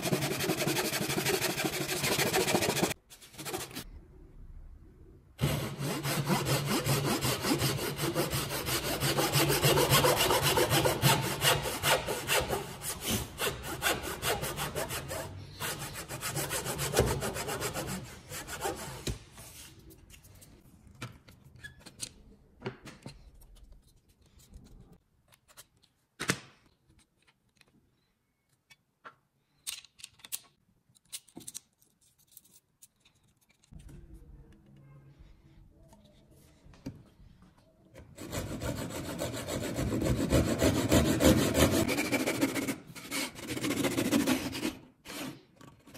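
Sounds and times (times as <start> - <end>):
hand saw cutting wood: 0.0 - 3.0, 5.4 - 19.0, 38.2 - 45.9.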